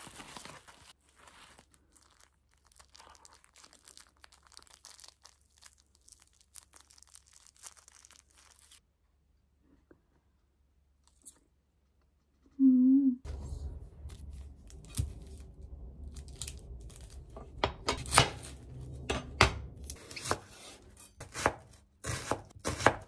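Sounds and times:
rustling and crinkling: 0:00.0 - 0:08.8, 0:13.3 - 0:19.0.

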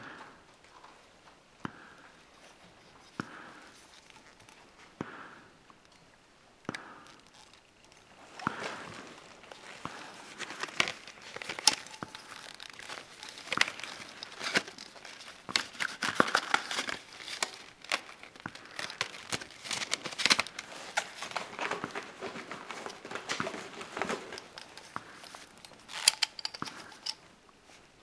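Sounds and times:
plastic packaging crinkling: 0:07.0 - 0:27.8.

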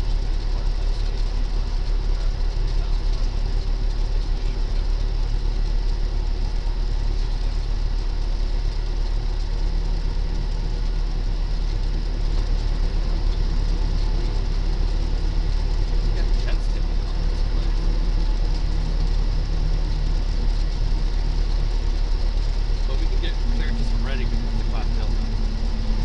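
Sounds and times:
plane engine and propeller droning: 0:00.0 - 0:26.0.

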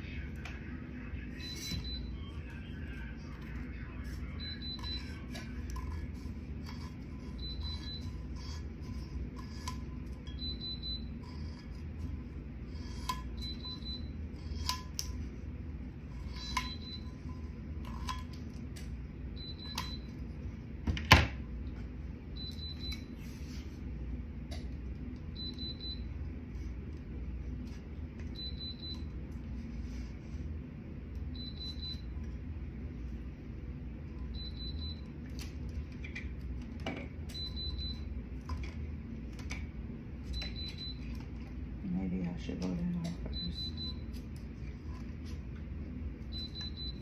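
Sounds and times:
low steady hum: 0:00.0 - 0:47.0.

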